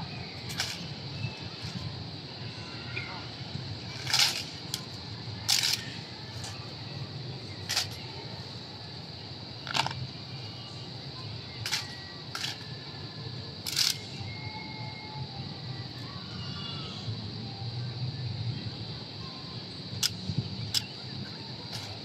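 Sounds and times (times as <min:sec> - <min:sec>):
rifle handling cracks: 0:04.0 - 0:04.8, 0:05.5 - 0:05.9, 0:07.7 - 0:08.0, 0:09.7 - 0:10.0, 0:11.6 - 0:12.6, 0:13.6 - 0:14.0.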